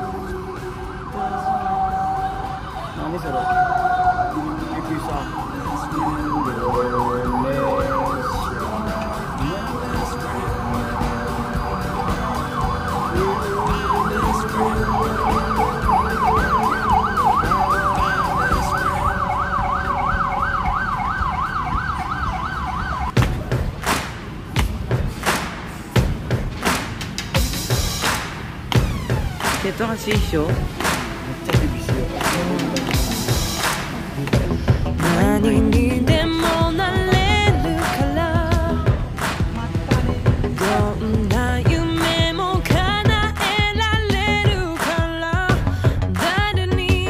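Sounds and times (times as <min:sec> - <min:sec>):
siren wailing: 0:00.0 - 0:23.2, 0:35.1 - 0:39.2
music with drum hits: 0:23.1 - 0:47.0.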